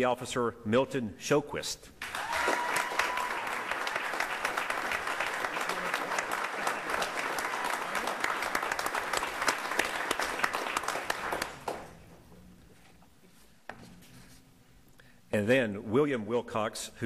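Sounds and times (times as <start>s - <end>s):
people applauding: 2.0s - 12.0s.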